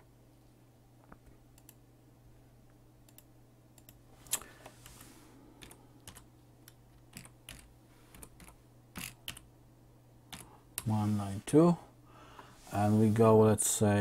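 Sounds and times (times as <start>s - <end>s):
faint low hum: 0.0s - 14.0s
keyboard keys tapping: 5.6s - 6.2s.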